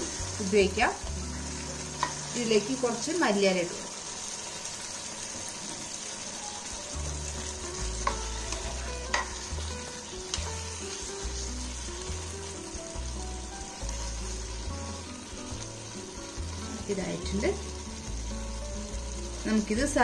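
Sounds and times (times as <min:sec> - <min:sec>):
gravy sizzling in a frying pan: 0:00.0 - 0:20.0.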